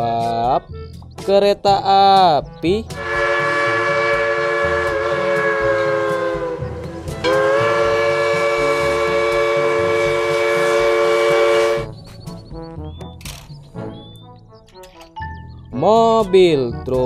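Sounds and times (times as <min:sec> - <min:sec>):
steam locomotive chime whistle: 0:02.9 - 0:11.9
low engine rumble: 0:02.9 - 0:12.4.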